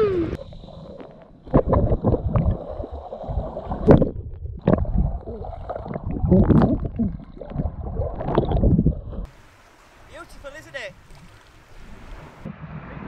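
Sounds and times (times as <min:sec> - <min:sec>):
muffled underwater sloshing: 0:10.9 - 0:13.0.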